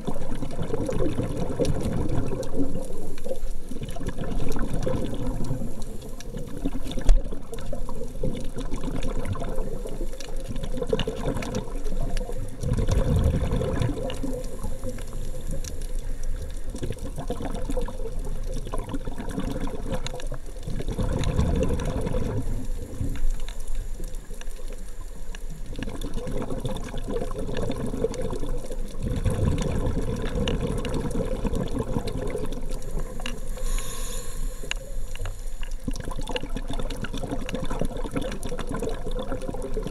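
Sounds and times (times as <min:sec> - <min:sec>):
low water surges: 0:00.0 - 0:39.9
muffled underwater noise: 0:00.0 - 0:39.9
faint clicks: 0:14.0 - 0:21.4, 0:29.6 - 0:39.0.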